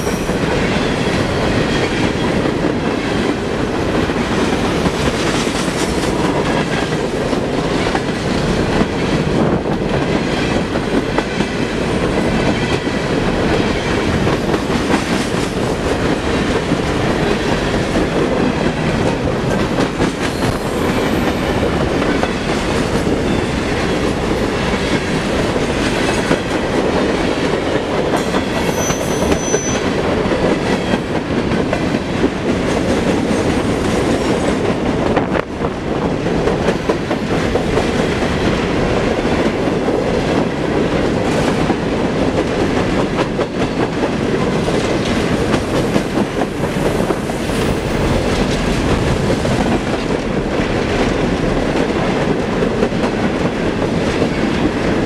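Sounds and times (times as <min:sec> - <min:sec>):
train wheels clattering on rails: 0:00.0 - 0:55.0.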